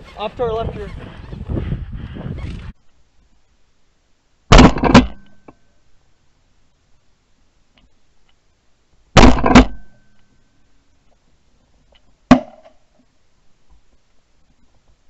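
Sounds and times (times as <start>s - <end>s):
shotgun shots: 4.5s - 5.2s, 9.2s - 9.9s.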